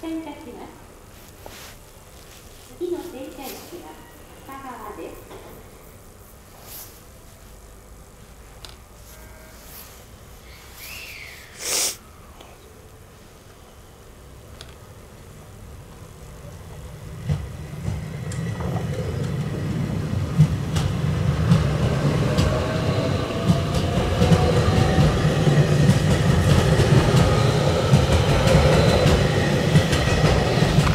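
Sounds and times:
electric train rumble: 0:00.0 - 0:12.4, 0:13.0 - 0:30.9.

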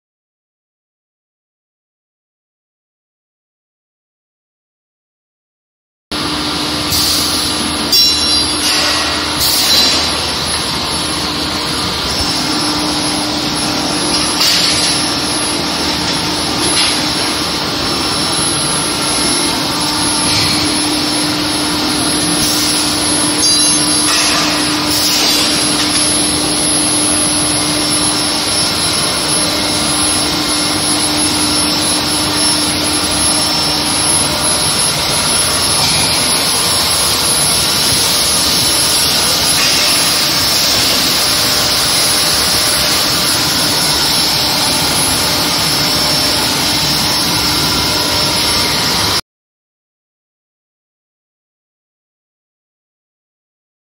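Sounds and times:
loud rushing machine noise: 0:06.1 - 0:49.2
machine hum: 0:06.1 - 0:49.2
thin high whine: 0:06.2 - 0:49.2.

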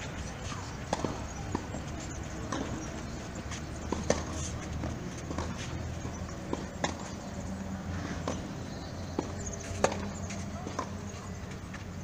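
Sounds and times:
tennis ball bouncing: 0:00.2 - 0:11.9
racket hitting tennis ball: 0:00.4 - 0:07.3, 0:08.2 - 0:10.9.

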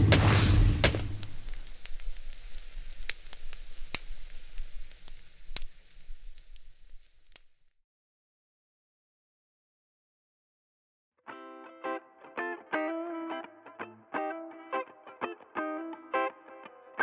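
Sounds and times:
frying pan sizzle with pops: 0:00.2 - 0:07.8.

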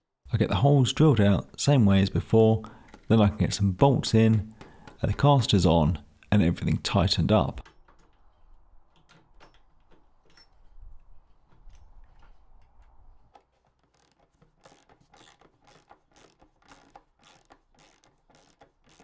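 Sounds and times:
socket ratchet clicking: 0:13.8 - 0:19.0.

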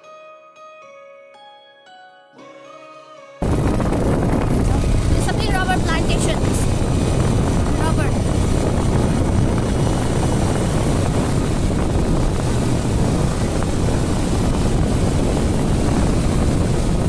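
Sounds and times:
motorcycle running: 0:03.4 - 0:17.0
wind rushing on microphone: 0:03.4 - 0:17.0.

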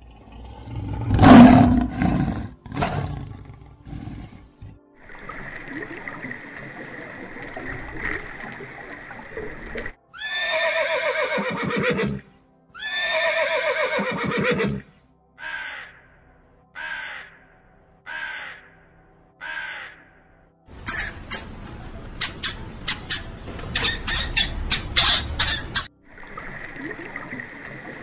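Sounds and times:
horse whinnying: 0:10.2 - 0:14.9, 0:22.4 - 0:25.9
raven cawing: 0:15.4 - 0:21.5.

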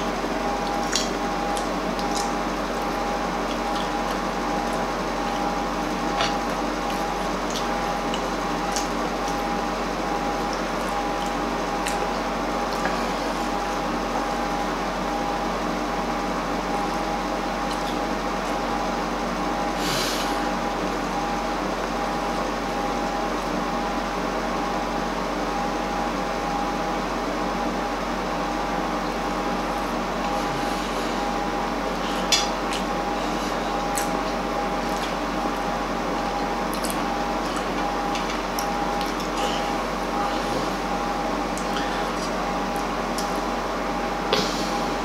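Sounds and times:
steady hum: 0:00.0 - 0:45.0.

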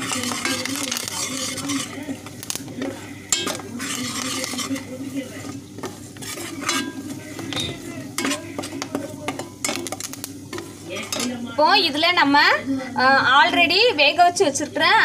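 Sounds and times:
spoon clinking and scraping pot: 0:00.0 - 0:11.4
paste sizzling: 0:00.0 - 0:12.4.

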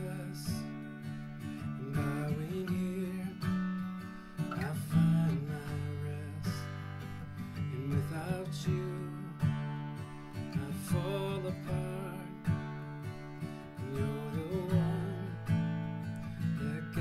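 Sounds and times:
guitar strumming slow chords: 0:00.0 - 0:17.0
man singing softly: 0:00.0 - 0:17.0.

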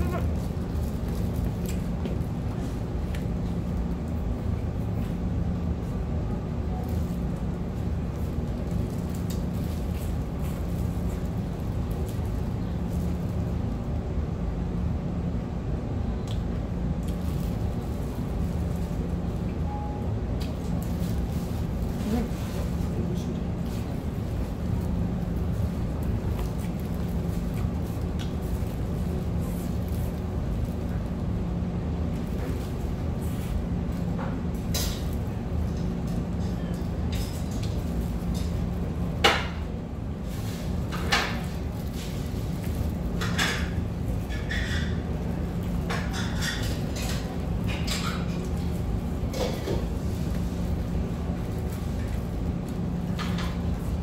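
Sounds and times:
low mechanical hum: 0:00.0 - 0:54.0.

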